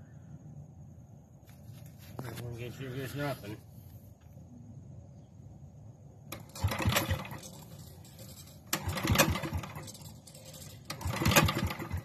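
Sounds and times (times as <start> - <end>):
generator engine turning over: 6.3 - 12.0.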